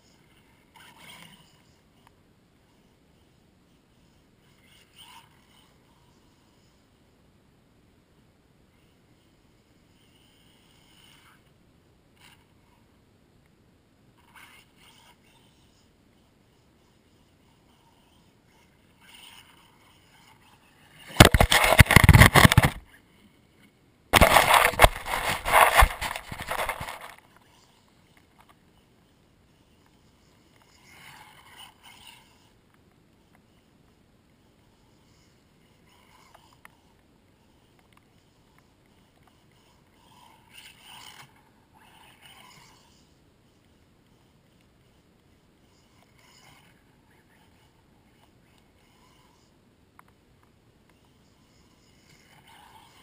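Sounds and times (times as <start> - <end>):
tyres on grass: 21.2 - 22.8, 24.2 - 27.2
toy buggy rushing drive noise: 39.6 - 43.1
rc car motor whine: 39.6 - 43.2.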